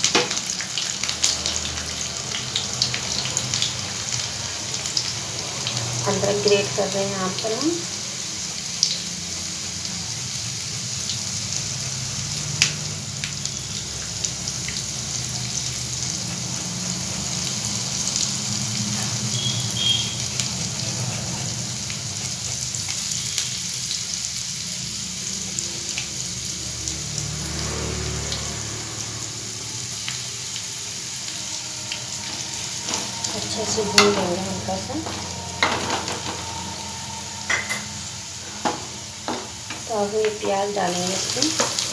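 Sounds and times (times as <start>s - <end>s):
hot oil sizzling: 0.0s - 41.9s
low hum: 31.2s - 39.9s.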